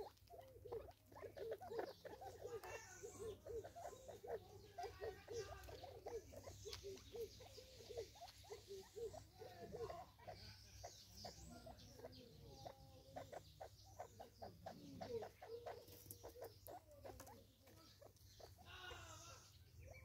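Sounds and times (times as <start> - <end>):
beaks pecking on wood: 0.0 - 19.7
birds clucking: 0.0 - 20.0
higher bird call: 18.6 - 20.0.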